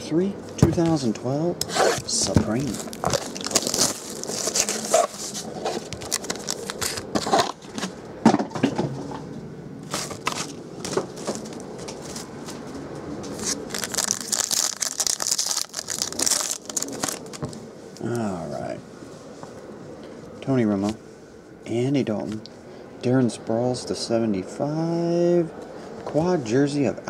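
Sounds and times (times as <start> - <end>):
foil pack crackling: 2.1 - 7.6, 13.3 - 17.6
plastic wrap crinkling: 2.1 - 7.6, 13.3 - 17.6.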